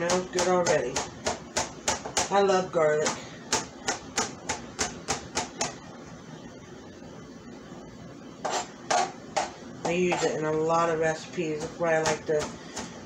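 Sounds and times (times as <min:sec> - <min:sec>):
knife chopping on plastic board: 0:00.0 - 0:02.4, 0:03.0 - 0:05.8.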